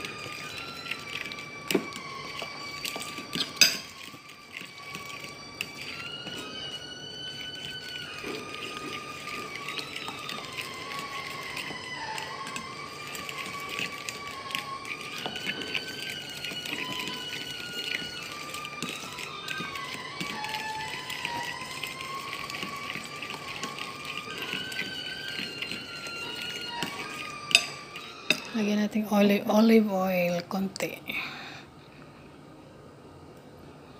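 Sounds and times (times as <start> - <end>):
held tones sliding in pitch: 0.0 - 29.5
fork clinking against metal bowl: 3.4 - 3.9, 27.5 - 28.5.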